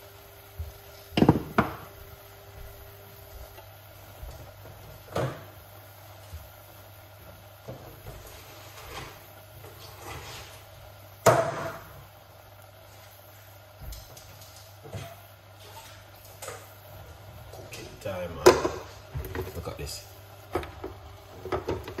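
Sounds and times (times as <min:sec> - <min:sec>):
kitchen items knocking and clattering: 0:01.2 - 0:01.9, 0:20.5 - 0:22.0.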